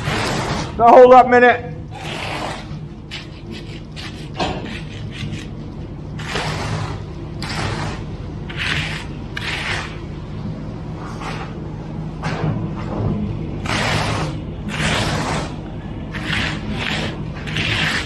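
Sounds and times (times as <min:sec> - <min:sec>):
tool scraping wet concrete: 0:00.0 - 0:01.2, 0:01.9 - 0:05.6, 0:06.2 - 0:10.1, 0:13.6 - 0:18.0.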